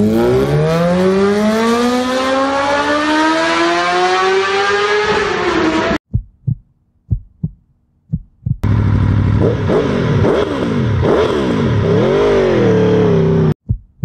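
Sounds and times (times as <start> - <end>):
motorcycle engine revving: 0.0 - 6.0, 8.6 - 13.6
heartbeat thumps: 6.0 - 8.7, 13.6 - 14.0.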